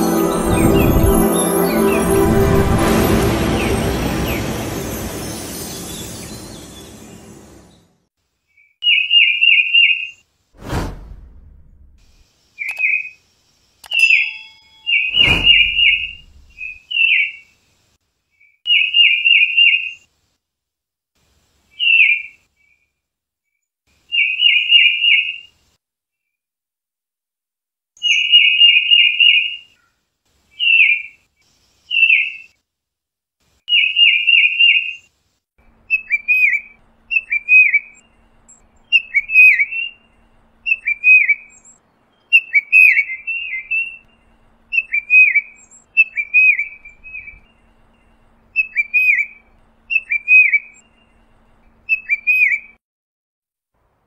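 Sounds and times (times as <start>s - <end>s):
sharp thumps: 10.6s - 12.2s, 15.1s - 16.8s
titmouse whistled calls: 35.9s - 38.0s, 38.9s - 40.1s, 40.7s - 41.6s, 42.3s - 44.0s, 44.7s - 47.5s, 48.5s - 50.8s, 51.9s - 52.8s.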